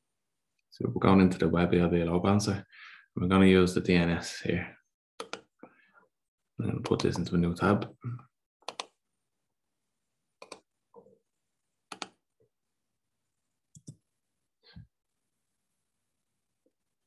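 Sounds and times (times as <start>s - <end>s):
computer mouse clicks: 5.2s - 5.5s, 8.6s - 9.0s, 10.4s - 10.7s, 11.9s - 12.2s, 13.7s - 14.0s.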